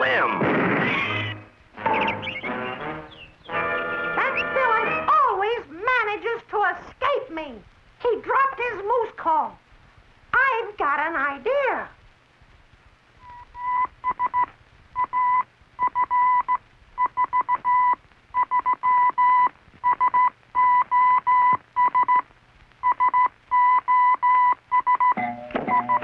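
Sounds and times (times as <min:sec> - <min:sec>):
high beep in pulses: 0:23.0 - 0:26.0.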